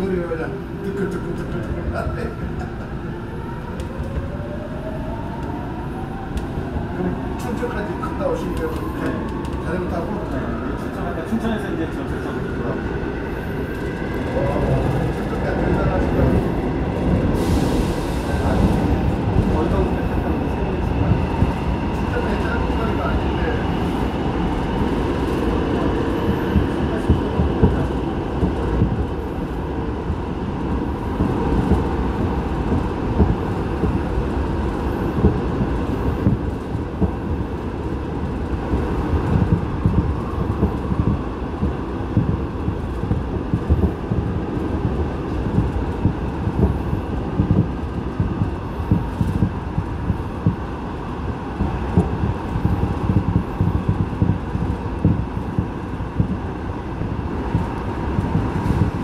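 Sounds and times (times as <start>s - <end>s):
train rumbling in tunnel: 0.0s - 59.0s.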